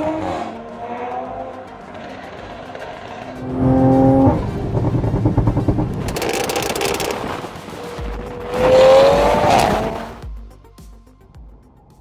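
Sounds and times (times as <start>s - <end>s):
car engine revving: 0.0s - 10.2s
exhaust pops and crackles: 2.0s - 9.8s.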